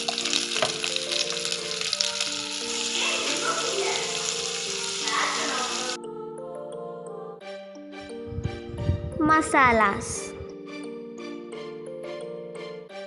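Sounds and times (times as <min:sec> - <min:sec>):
vegetables sizzling in oil: 0:00.0 - 0:06.0
background music: 0:00.0 - 0:13.0.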